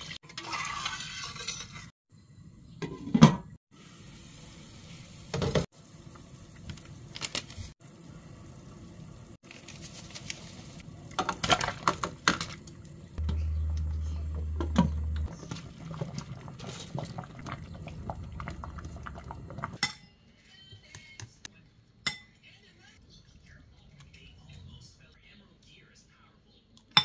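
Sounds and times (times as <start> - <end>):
liquid bubbling: 14.9 - 19.8.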